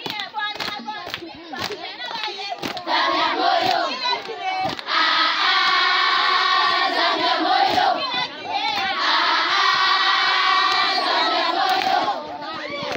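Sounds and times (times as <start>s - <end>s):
children singing in unison: 2.8s - 4.2s, 4.8s - 12.5s.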